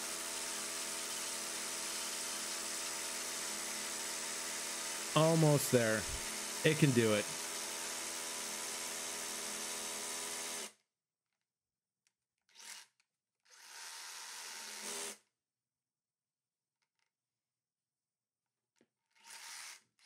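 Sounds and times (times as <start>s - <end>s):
hammer drill drilling into concrete: 0.0s - 6.6s, 7.2s - 10.8s, 12.5s - 15.2s, 19.1s - 20.0s.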